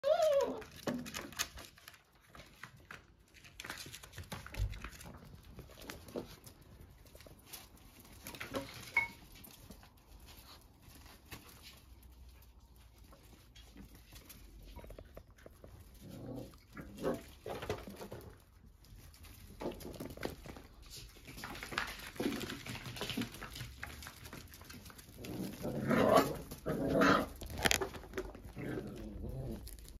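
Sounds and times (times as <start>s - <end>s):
puppy whining yelp: 0.0s - 0.9s
puppies scuffling: 0.0s - 30.0s
puppy growling: 13.0s - 18.4s, 24.9s - 30.0s.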